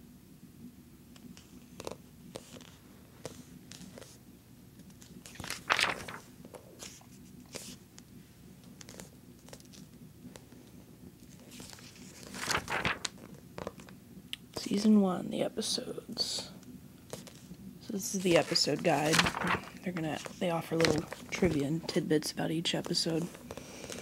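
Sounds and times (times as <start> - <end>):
magazine pages rustling: 1.2 - 4.2, 4.8 - 14.0, 17.1 - 22.0, 22.7 - 24.0
pages turning: 1.2 - 4.2, 4.8 - 10.5, 11.2 - 14.0, 17.1 - 21.9.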